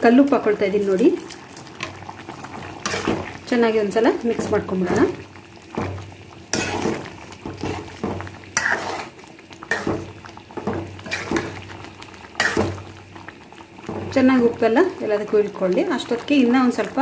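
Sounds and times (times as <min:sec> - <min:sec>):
thick gravy bubbling: 0:00.0 - 0:17.0
spatula scraping metal pan: 0:02.8 - 0:03.2, 0:06.5 - 0:08.0, 0:08.6 - 0:10.1, 0:11.0 - 0:11.6.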